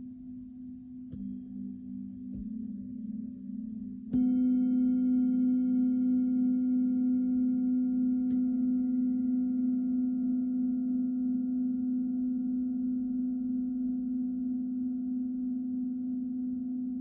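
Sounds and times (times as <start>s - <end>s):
singing bowl ringing: 0.0s - 17.0s.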